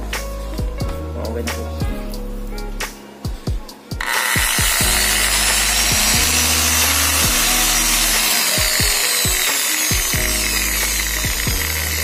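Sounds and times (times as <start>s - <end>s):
background music with beat: 0.0s - 12.0s
buffing machine motor running: 4.0s - 12.0s.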